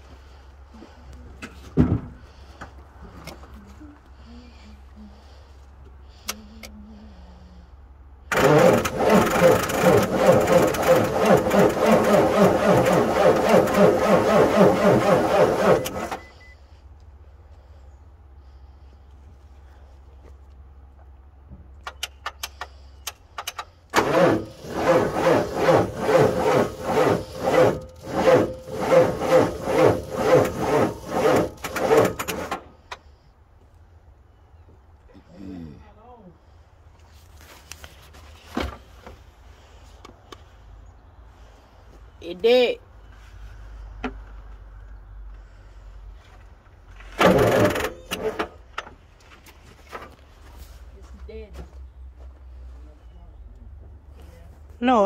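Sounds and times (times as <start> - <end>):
diesel engine cranking: 8.0 - 16.8, 21.8 - 33.2, 43.0 - 50.8
starter motor spinning: 8.3 - 16.4, 24.0 - 32.7, 47.0 - 48.5.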